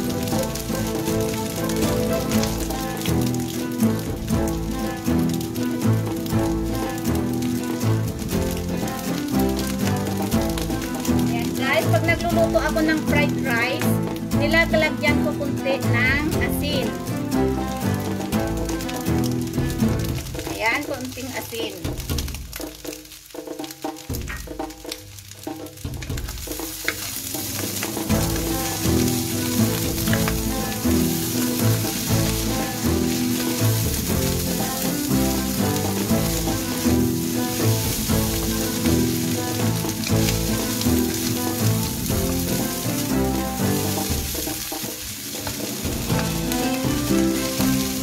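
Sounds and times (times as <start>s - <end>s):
background music: 0.0s - 48.0s
rice sizzling in a wok: 0.0s - 48.0s
wooden spatula scraping a pan: 26.4s - 48.0s.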